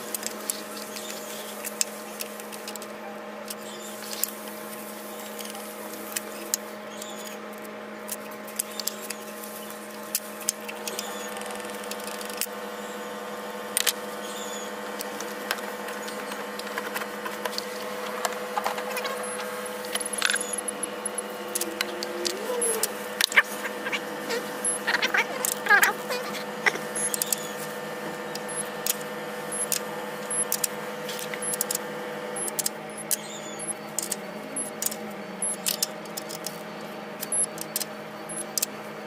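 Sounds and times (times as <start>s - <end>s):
steady hum: 0.0s - 39.0s
small high squeaks: 20.1s - 27.6s.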